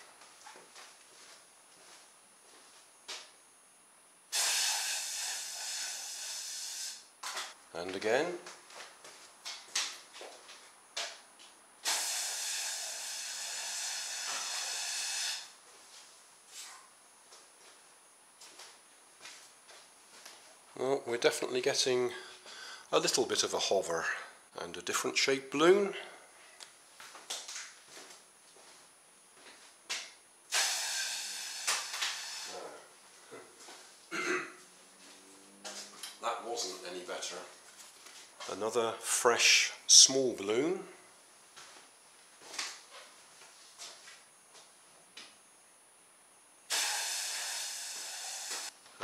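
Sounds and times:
air hissing out of balloon: 4.3 - 7.1, 11.8 - 15.6, 30.5 - 32.9, 46.7 - 48.8.

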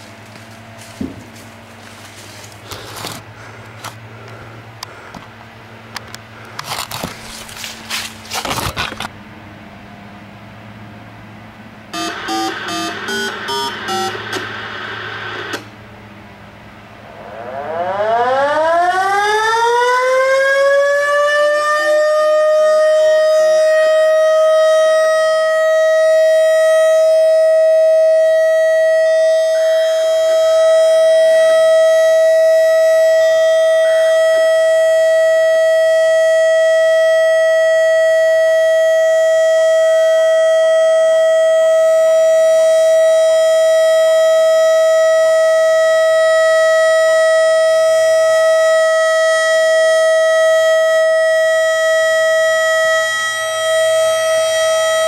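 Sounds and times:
warning siren rising tone: 11.9 - 15.8, 16.9 - 55.0
quick beeps: 12.0 - 14.4.

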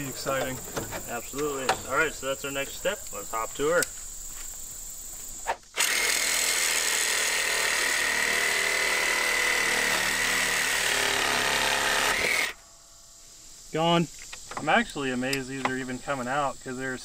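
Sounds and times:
power tool whining: 5.7 - 12.7.

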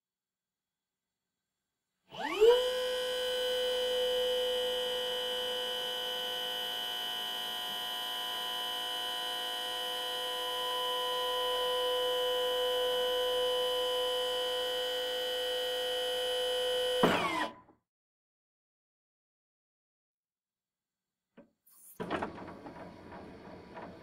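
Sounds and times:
forklift hydraulic pump whine: 2.1 - 17.6.

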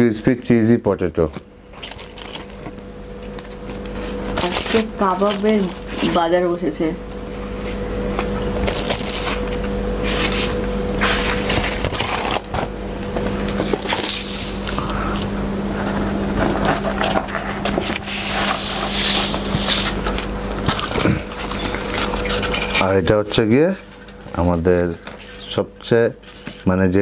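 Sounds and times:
steady hum: 0.0 - 27.0
boxes and foil rustling: 1.7 - 6.4, 8.4 - 14.7, 15.8 - 25.6.

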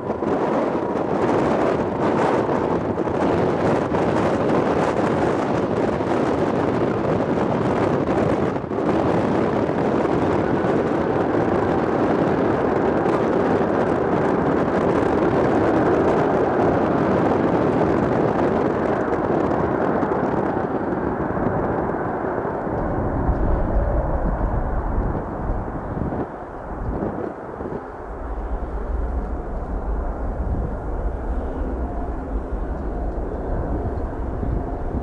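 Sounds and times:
jet engines roaring: 0.0 - 35.0
deep low rumble: 20.6 - 35.0.

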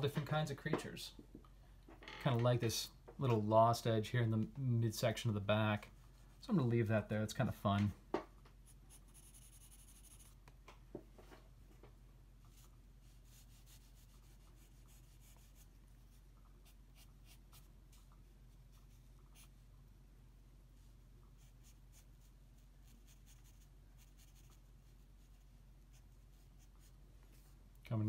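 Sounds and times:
low steady hum: 0.0 - 28.0
pencil scratching on paper: 8.7 - 10.4, 12.5 - 18.1, 21.4 - 27.4.

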